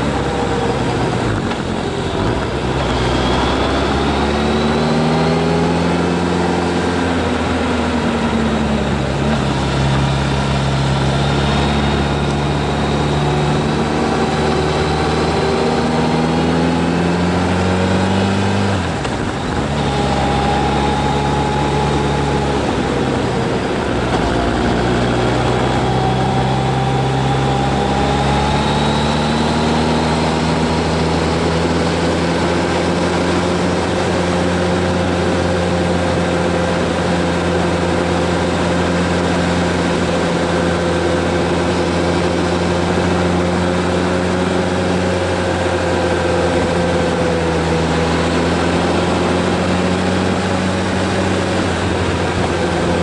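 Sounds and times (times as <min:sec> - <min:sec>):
constant rushing noise: 0:00.0 - 0:53.0
motorcycle engine under load: 0:00.0 - 0:53.0.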